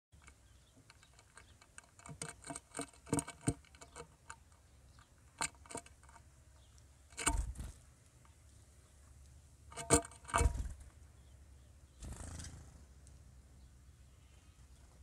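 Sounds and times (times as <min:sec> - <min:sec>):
birds pecking metal pan: 0:00.2 - 0:08.4, 0:09.7 - 0:10.8
rustling thump: 0:09.8 - 0:10.8.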